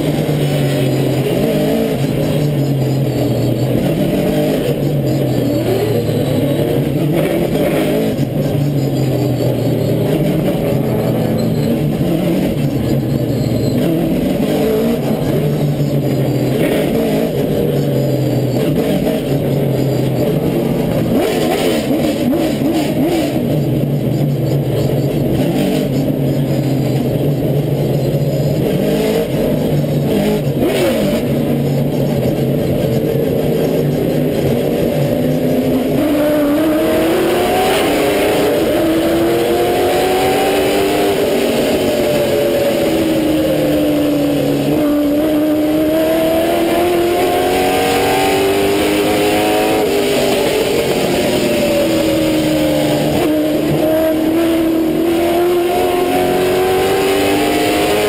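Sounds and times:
racing car engines: 0:00.0 - 0:58.0.

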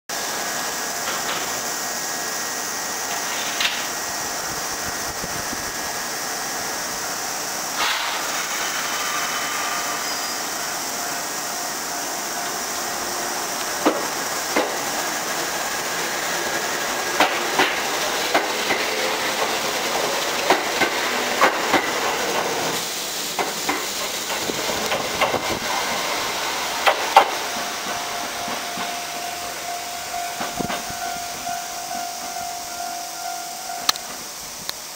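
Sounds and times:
electric train passing: 0:00.1 - 0:34.9
wheels clicking over rail joints: 0:03.1 - 0:04.0, 0:13.5 - 0:22.6.

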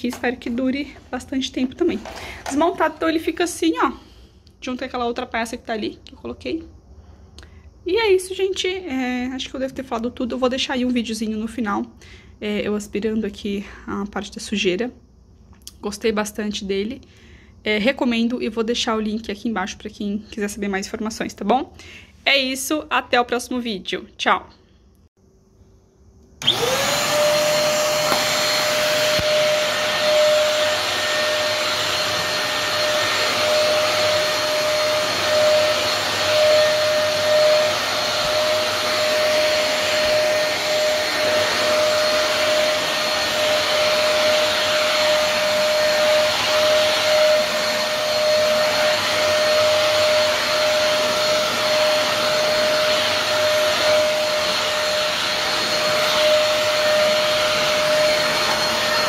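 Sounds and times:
vacuum cleaner whining: 0:00.0 - 0:04.1, 0:26.4 - 0:59.0.

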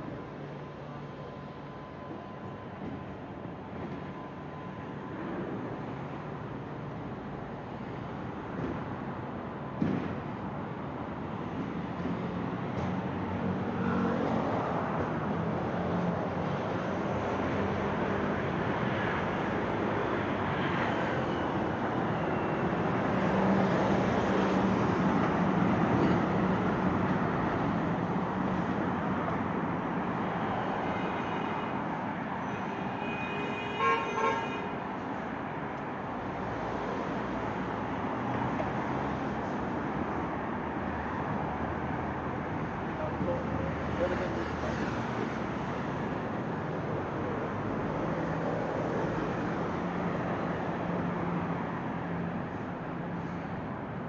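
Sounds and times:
street traffic: 0:00.0 - 0:54.0
vehicle horn toots: 0:33.0 - 0:34.7.

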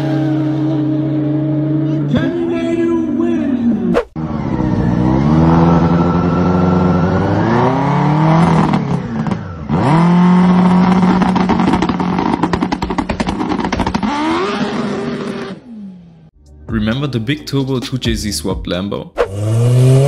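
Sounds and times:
snowmobile engine revving: 0:00.0 - 0:16.3, 0:19.2 - 0:20.0
engine crackling pops: 0:10.6 - 0:15.4.

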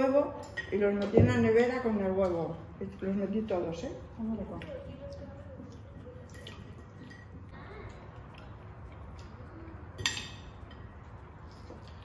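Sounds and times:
cutlery and dishes clinking: 0:00.3 - 0:02.5, 0:06.3 - 0:07.5, 0:09.9 - 0:12.0.

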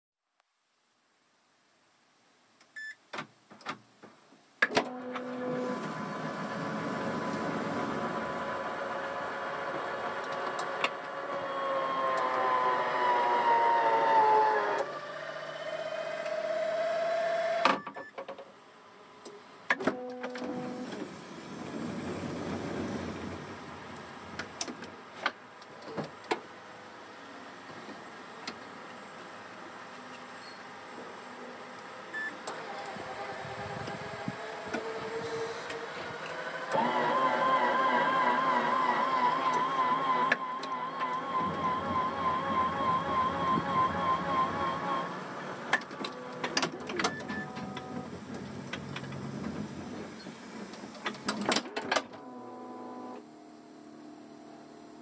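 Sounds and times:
electric motor whining: 0:05.0 - 0:17.6, 0:32.5 - 0:46.6.

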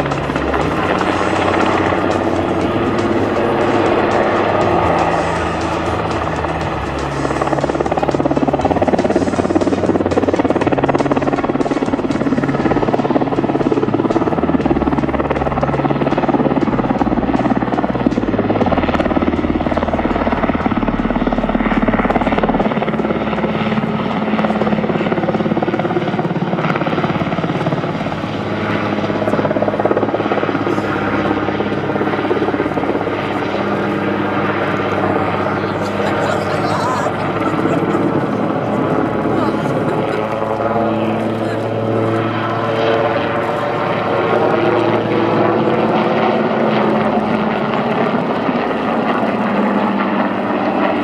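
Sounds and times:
helicopter rotor and engines: 0:00.0 - 0:51.0.

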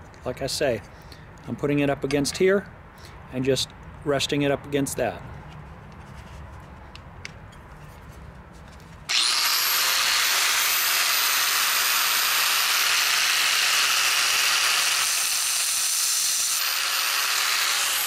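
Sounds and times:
angle grinder whining: 0:09.1 - 0:18.0.

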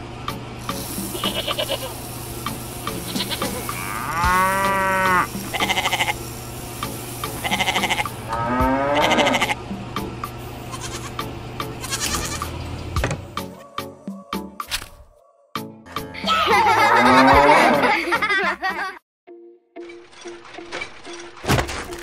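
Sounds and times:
steady low hum: 0:00.0 - 0:13.5
background music: 0:00.2 - 0:22.0
livestock bleating: 0:01.1 - 0:01.9, 0:03.0 - 0:06.2, 0:07.4 - 0:09.6, 0:10.7 - 0:11.2, 0:11.8 - 0:12.5.

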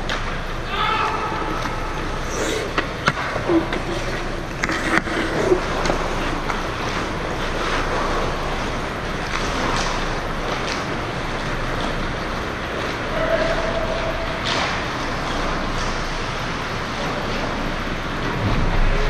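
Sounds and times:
hockey sticks and puck clacking: 0:00.0 - 0:16.2
skates scraping on ice: 0:01.6 - 0:18.2
rink noise: 0:01.8 - 0:10.3.

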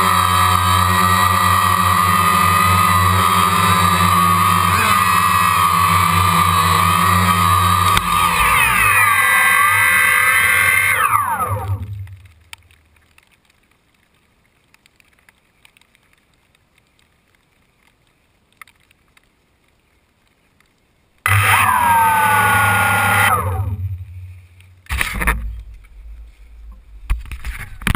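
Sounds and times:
drone motors whining: 0:00.0 - 0:12.5, 0:21.2 - 0:27.4.

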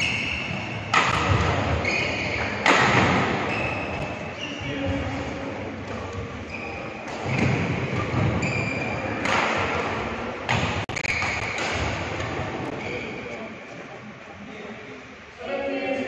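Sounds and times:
racket hitting shuttlecock: 0:00.0 - 0:04.1, 0:07.0 - 0:12.8
murmur of voices: 0:00.5 - 0:10.8, 0:11.8 - 0:16.0
shoes squeaking on court: 0:01.5 - 0:02.6, 0:03.4 - 0:05.2, 0:05.9 - 0:09.2.

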